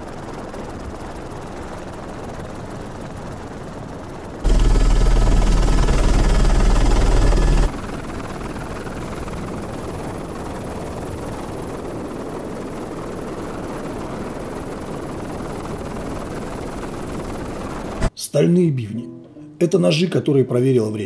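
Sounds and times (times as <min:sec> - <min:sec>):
helicopter rotor and airflow rush: 0:00.0 - 0:18.1
helicopter cabin hum: 0:03.3 - 0:18.1.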